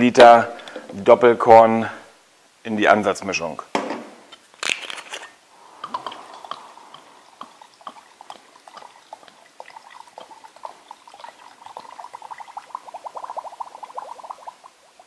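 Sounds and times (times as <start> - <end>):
liquid glugging from glass bottle: 5.6 - 15.0.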